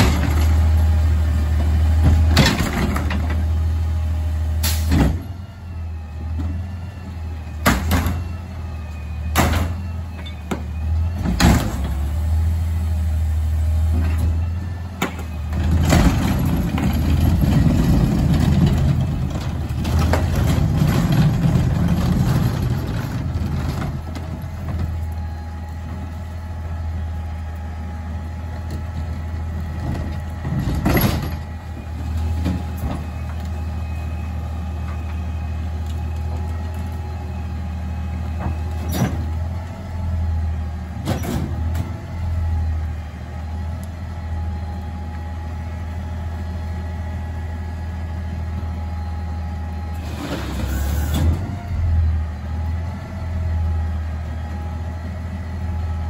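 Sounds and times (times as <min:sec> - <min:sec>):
garbage truck engine hum: 0:00.0 - 0:56.0
hydraulic whine: 0:48.8 - 0:53.6.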